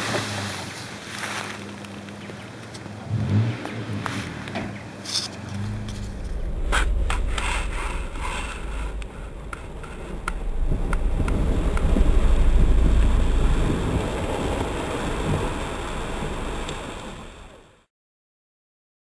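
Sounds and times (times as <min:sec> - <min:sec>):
vehicle engine under load: 0:00.0 - 0:17.7
low rumble: 0:05.4 - 0:17.8.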